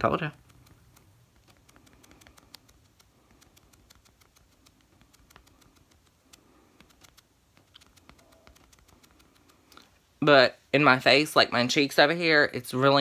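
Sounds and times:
makeup sponge dabbing on skin: 0:00.0 - 0:10.2.

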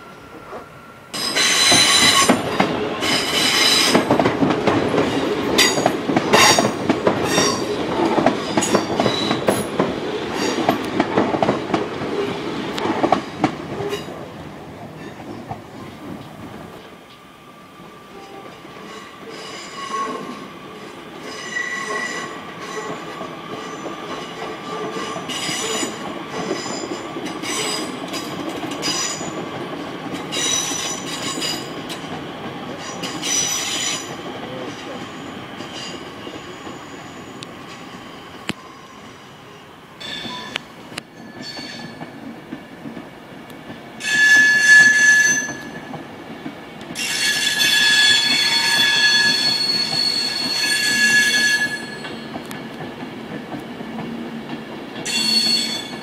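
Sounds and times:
train wheels clattering: 0:01.2 - 0:14.2, 0:18.7 - 0:38.0, 0:40.0 - 0:56.0
wheel squeal: 0:44.0 - 0:45.8, 0:47.0 - 0:52.3, 0:55.1 - 0:56.0.

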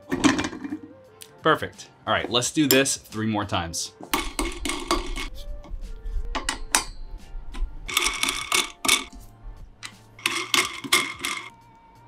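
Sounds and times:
music with percussive hits and bass: 0:04.0 - 0:11.6.

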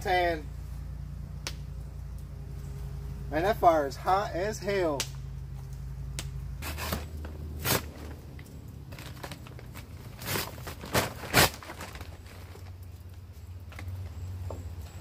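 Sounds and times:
knife slitting bag: 0:06.6 - 0:08.1, 0:10.1 - 0:12.0
bag crinkling and tearing: 0:06.6 - 0:13.1.

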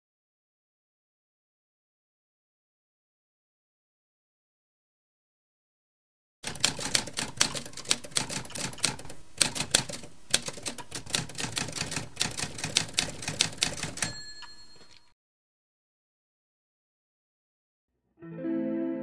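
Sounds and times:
typewriter keys clacking: 0:06.4 - 0:15.1
typewriter carriage bell: 0:11.1 - 0:15.1.

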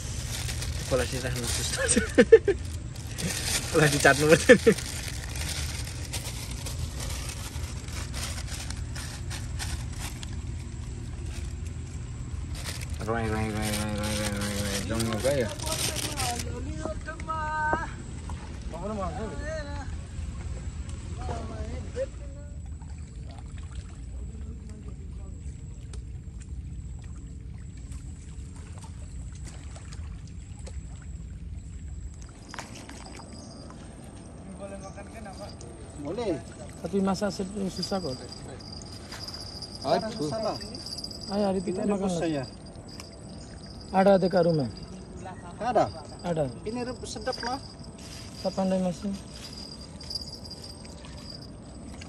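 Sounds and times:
plastic bag crinkling: 0:00.0 - 0:11.8, 0:12.4 - 0:16.5, 0:49.2 - 0:50.8
faint high-pitched tone: 0:31.7 - 0:52.0.

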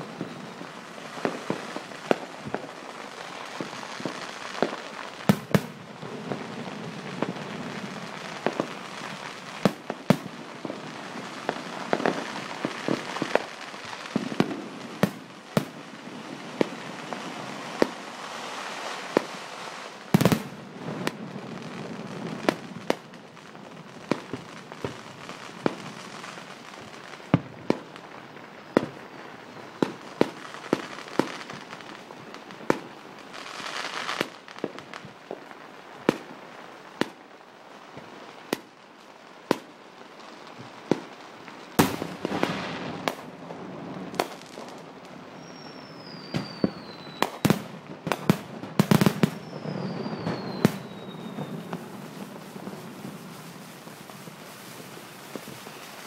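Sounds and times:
fireworks bangs: 0:00.0 - 0:37.2, 0:40.5 - 0:56.0
fireworks crackling: 0:00.0 - 0:56.0
falling firework whistles: 0:44.2 - 0:56.0.

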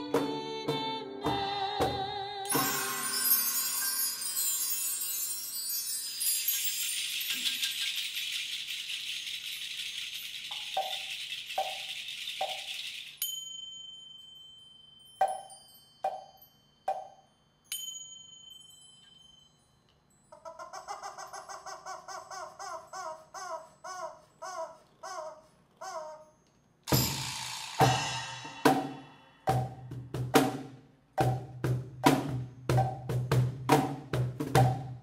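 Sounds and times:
percussion squeaks and taps: 0:00.0 - 0:03.8, 0:06.2 - 0:13.2, 0:15.2 - 0:17.3, 0:26.4 - 0:30.0, 0:31.2 - 0:35.0
high ringing tone: 0:02.5 - 0:07.8
bar chimes shimmering: 0:02.5 - 0:11.9, 0:12.6 - 0:20.4, 0:26.4 - 0:29.5
rubber chicken squeaking: 0:20.3 - 0:26.4.

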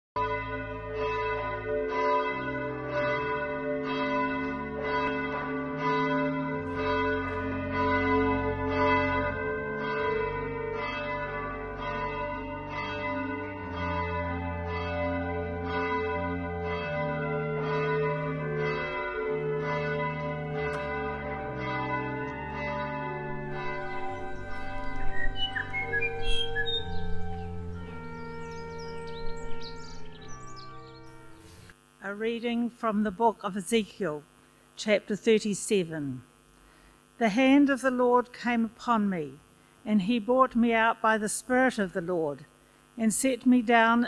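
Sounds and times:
church bells ringing: 0:00.2 - 0:31.8.

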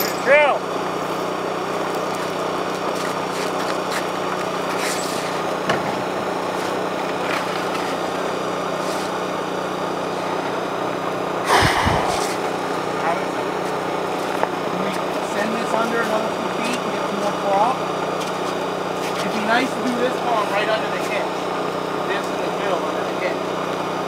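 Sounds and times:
small engine running: 0:00.0 - 0:12.2
short burst of noise: 0:11.5 - 0:13.1.

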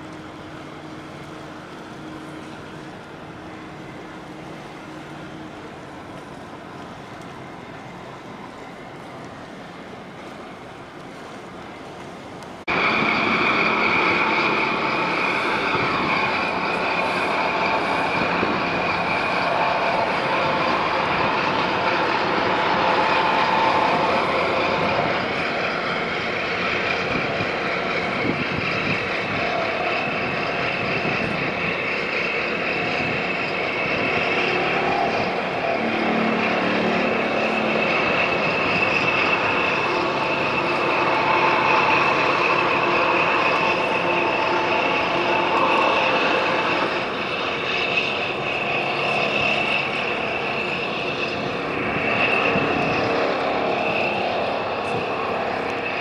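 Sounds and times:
diesel engines droning: 0:00.0 - 0:56.0
high whine: 0:12.4 - 0:56.0.

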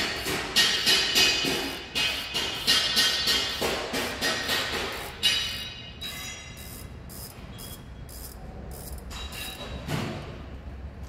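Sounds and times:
ratchet wrench clicking: 0:00.0 - 0:03.6, 0:04.2 - 0:09.7.

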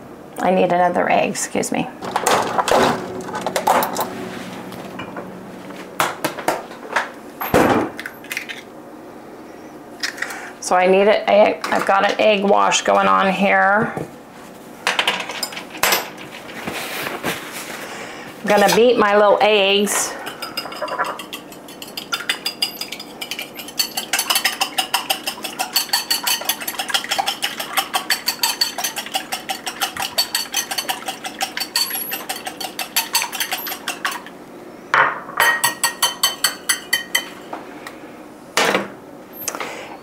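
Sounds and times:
whisk beating eggs in a bowl: 0:20.2 - 0:34.3, 0:35.6 - 0:37.3.

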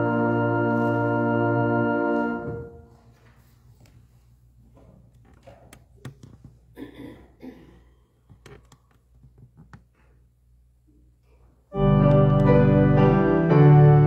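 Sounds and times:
keyboard sustained chord: 0:00.0 - 0:02.8, 0:11.7 - 0:14.0.

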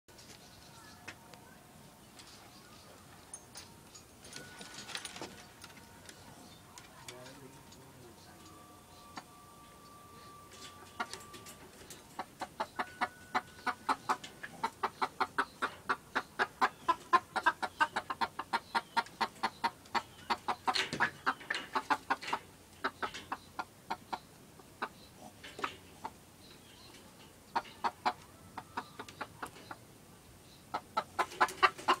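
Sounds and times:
chickens clucking: 0:02.2 - 0:32.0
chicken squawk: 0:27.6 - 0:29.5.

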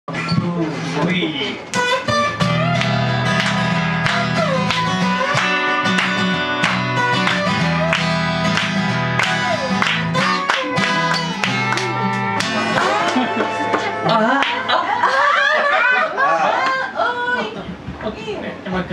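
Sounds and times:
slide guitar melody: 0:01.6 - 0:15.3
acoustic guitar strumming chords: 0:01.7 - 0:15.0.

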